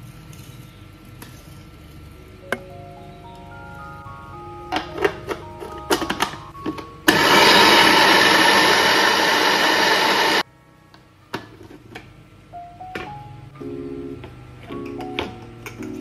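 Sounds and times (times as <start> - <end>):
food chopper motor grinding: 7.1 - 10.4.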